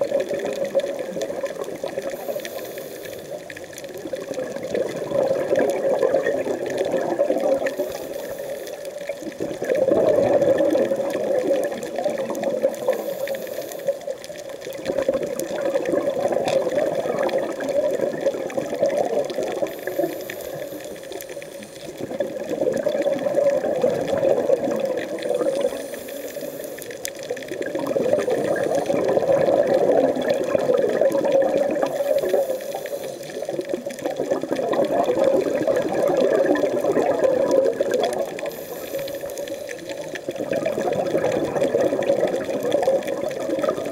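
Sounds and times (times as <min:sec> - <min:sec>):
exhaled air bubbles rushing: 0:00.0 - 0:43.9
regulator inhale hiss: 0:02.0 - 0:03.7, 0:07.6 - 0:09.2, 0:12.7 - 0:14.2, 0:19.6 - 0:22.0, 0:25.3 - 0:27.2, 0:28.2 - 0:29.1, 0:31.8 - 0:33.5, 0:38.4 - 0:40.2.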